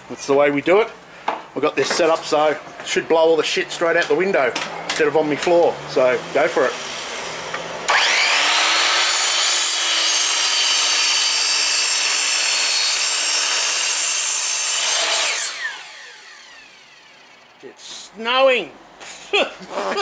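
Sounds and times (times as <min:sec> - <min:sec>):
mitre saw cutting wood: 0:05.4 - 0:17.6
saw blade spinning down: 0:07.9 - 0:13.9, 0:14.7 - 0:17.6.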